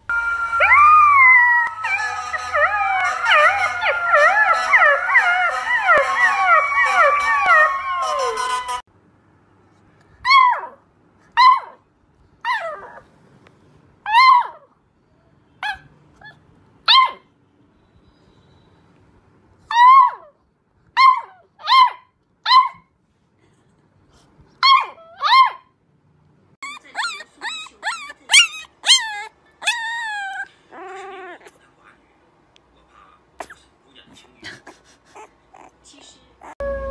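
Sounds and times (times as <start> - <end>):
puppy howling: 0.1 - 8.8, 26.6 - 31.5, 36.4 - 36.9
puppy short howls: 0.6 - 8.8.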